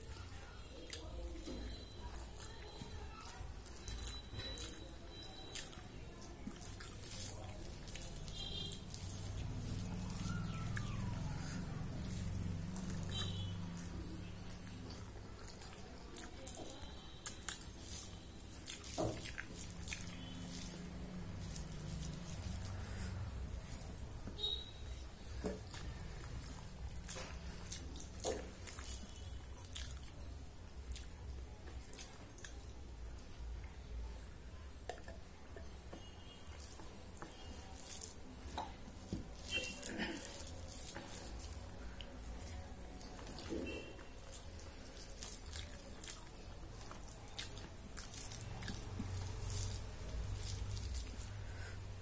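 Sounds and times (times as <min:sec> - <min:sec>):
wet squishing of food by hand: 0:00.0 - 0:52.0
fingers mixing rice on plate: 0:00.1 - 0:30.2, 0:36.4 - 0:51.8.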